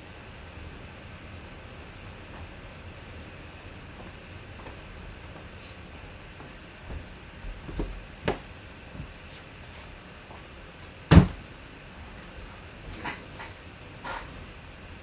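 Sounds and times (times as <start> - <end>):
loud thump of box: 11.1 - 11.4.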